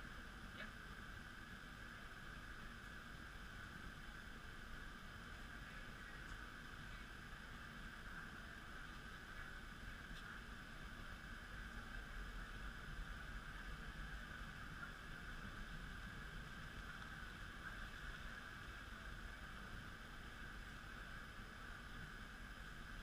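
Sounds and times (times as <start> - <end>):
constant mid-pitched hum: 0.0 - 23.0
even hiss: 0.0 - 23.0.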